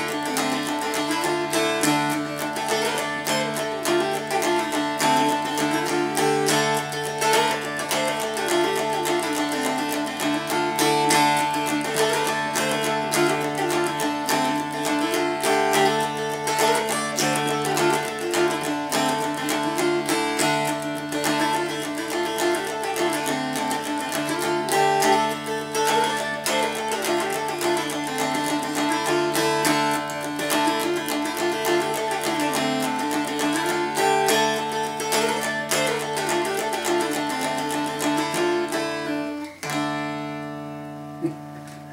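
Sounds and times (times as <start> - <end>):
dulcimer strum ringing: 0.0 - 41.9
mountain dulcimer picked melody: 0.0 - 41.9.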